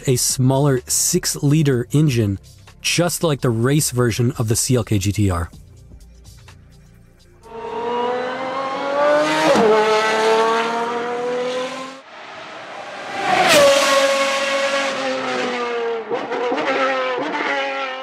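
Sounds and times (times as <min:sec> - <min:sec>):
sports car engine passing by: 0:07.4 - 0:18.0.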